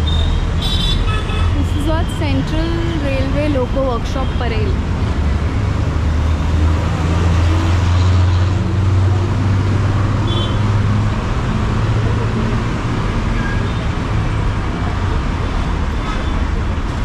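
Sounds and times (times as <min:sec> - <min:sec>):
road traffic: 0:00.0 - 0:17.0
large vehicle engine drone: 0:01.4 - 0:17.0.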